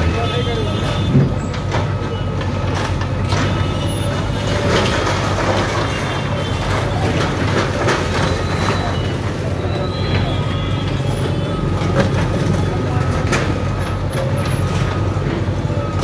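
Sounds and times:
diesel engine under load: 0.0s - 16.0s
rubble crashing and scraping: 2.8s - 14.8s.

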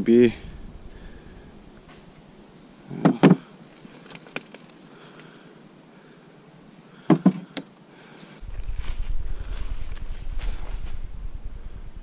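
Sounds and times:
hard knocks and clunks: 7.1s - 7.7s.

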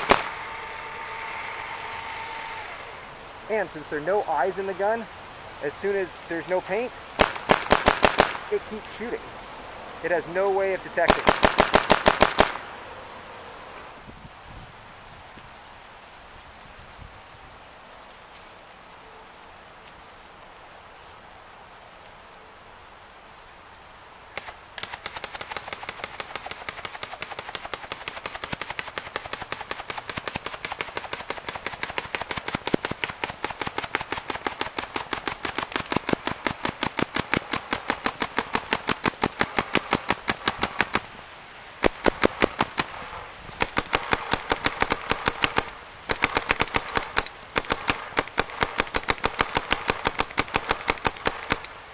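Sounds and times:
paintball marker firing rapidly: 0.0s - 0.4s, 7.2s - 8.6s, 11.0s - 12.6s, 24.4s - 41.1s, 41.8s - 51.7s.

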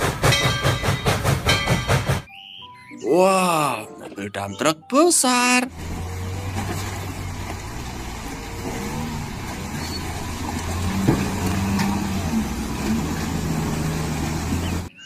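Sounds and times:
sharp knock: 0.0s - 2.3s
diesel truck engine under load: 5.7s - 14.9s.

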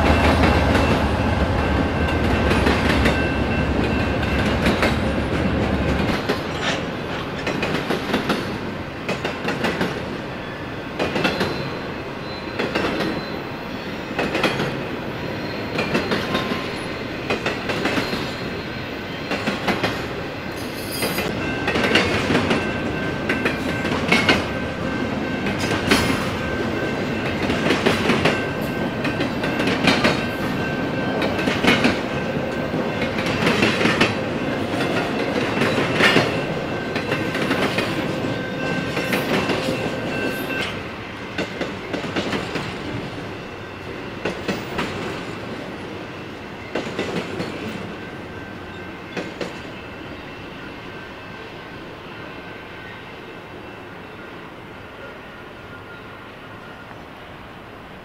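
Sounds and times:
train wheels clacking over rails: 0.0s - 13.4s, 14.0s - 51.7s
freight train rumble: 0.0s - 58.0s.

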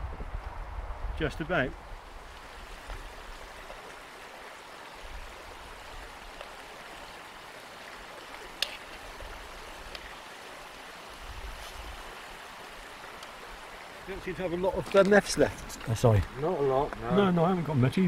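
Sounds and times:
wind rumble on microphone: 0.0s - 3.4s, 11.1s - 12.2s
river flowing over stones: 1.7s - 18.0s
faint ticks: 13.1s - 13.4s.

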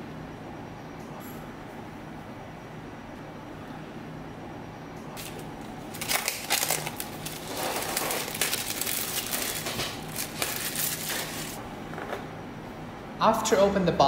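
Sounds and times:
plastic shrink wrap crinkling: 5.2s - 11.6s.

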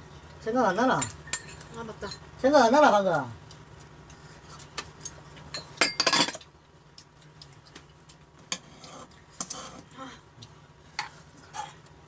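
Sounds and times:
utensils clinking against bowls: 1.0s - 2.3s, 5.5s - 6.4s.

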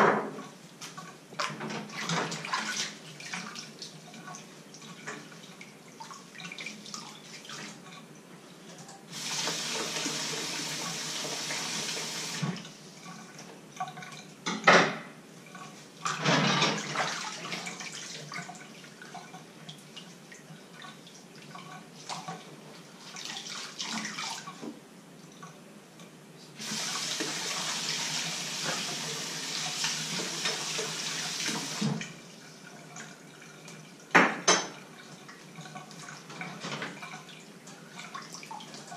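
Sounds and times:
dishes clinking: 34.2s - 34.8s.

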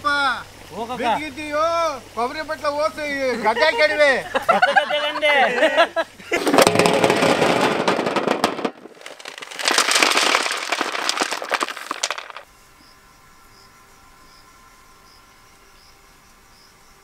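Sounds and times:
dense crackling: 6.3s - 12.4s.

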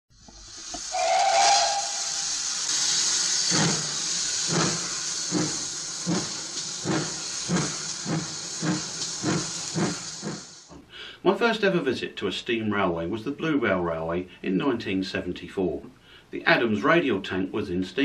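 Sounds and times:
locomotive exhaust chuffs: 0.1s - 10.7s
loud hiss of steam: 0.1s - 10.7s
steam locomotive whistle: 0.8s - 2.7s.

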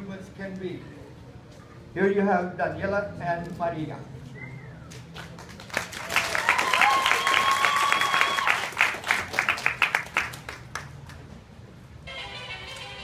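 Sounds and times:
audience clapping: 4.9s - 11.2s
high-pitched whistle or cheer: 6.4s - 8.6s.

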